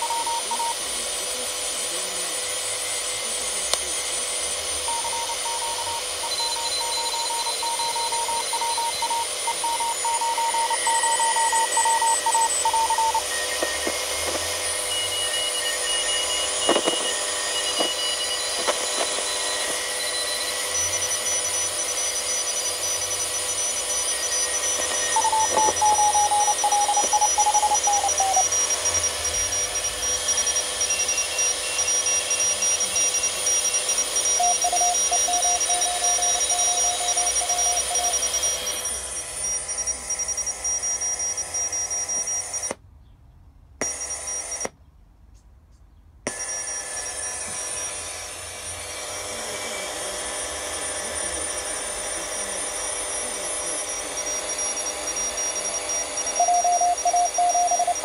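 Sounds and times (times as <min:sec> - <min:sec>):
morse code beeps: 0:00.0 - 0:00.8, 0:03.8 - 0:42.8, 0:51.0 - 0:58.0
radio band noise hiss: 0:11.6 - 0:14.5, 0:16.5 - 0:18.0, 0:18.6 - 0:19.8, 0:24.8 - 0:28.5
static clicks: 0:16.7 - 0:17.1.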